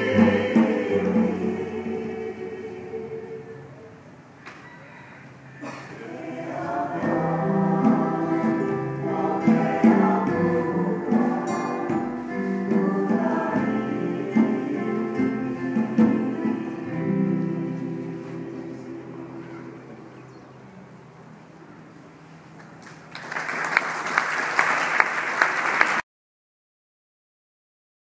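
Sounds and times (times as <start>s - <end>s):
choir singing sustained harmonies: 0.0s - 4.3s, 5.9s - 21.2s.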